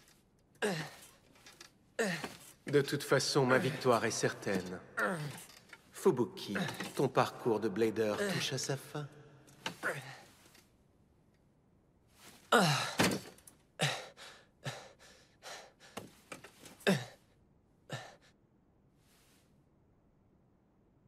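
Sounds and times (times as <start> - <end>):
boy grunting with effort: 0.6 - 1.0, 12.5 - 13.1.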